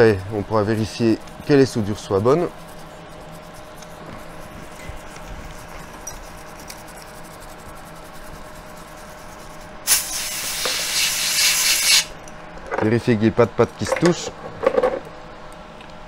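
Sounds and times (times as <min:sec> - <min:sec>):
faint hum: 0:00.0 - 0:16.0
aerosol spray hiss: 0:09.8 - 0:12.1.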